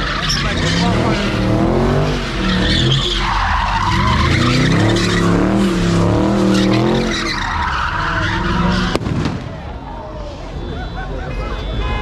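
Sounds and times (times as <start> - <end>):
car engine revving: 0.0 - 9.1
tyres screeching on asphalt: 0.0 - 11.8.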